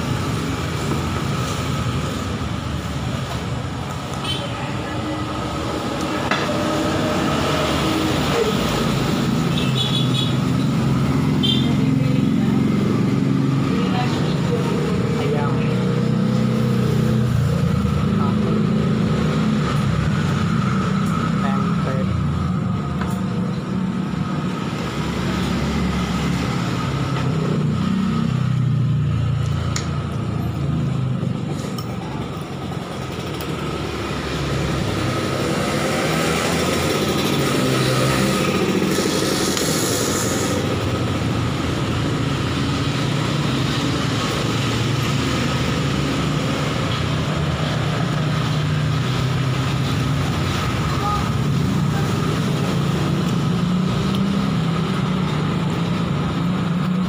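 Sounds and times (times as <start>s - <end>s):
road traffic rumble: 0.0s - 57.0s
heavy vehicle engine rumble: 29.1s - 35.6s.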